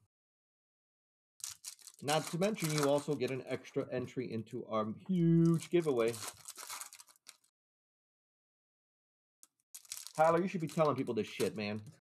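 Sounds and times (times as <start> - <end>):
foil pack rustling: 1.4 - 3.4, 5.6 - 7.5, 9.8 - 11.7.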